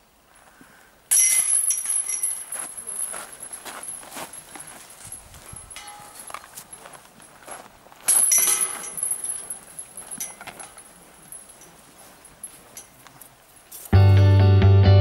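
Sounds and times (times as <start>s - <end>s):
metal chains jangling: 1.1s - 7.0s, 8.1s - 13.0s
disc striking basket chains: 1.1s - 7.1s, 8.0s - 13.9s.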